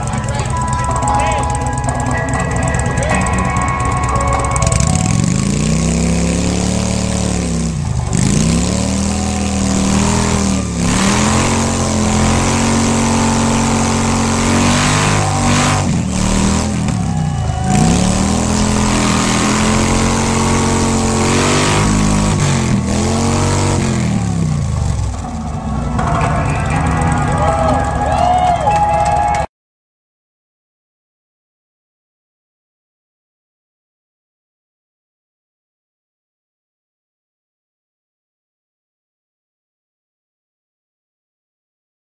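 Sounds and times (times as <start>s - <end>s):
motorcycle engine revving: 0.0s - 29.5s.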